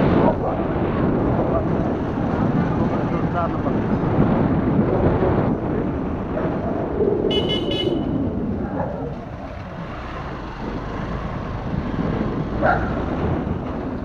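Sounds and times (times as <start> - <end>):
road noise: 0.0 - 14.0
rushing wind: 0.0 - 14.0.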